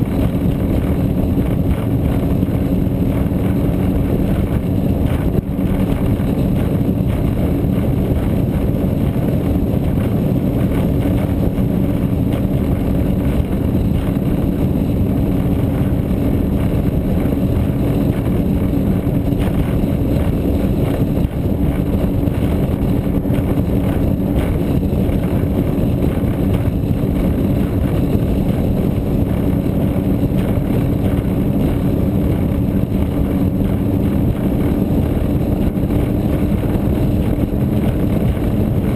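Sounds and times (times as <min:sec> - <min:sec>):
powerboat engine drone: 0:00.0 - 0:38.9
wind and water rushing: 0:00.0 - 0:38.9.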